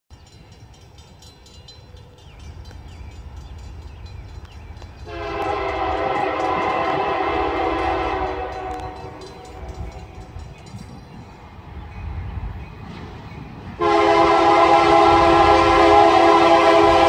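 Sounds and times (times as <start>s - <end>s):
low rumble of train: 0.1s - 17.0s
locomotive horn blast: 5.0s - 9.7s, 13.8s - 17.0s.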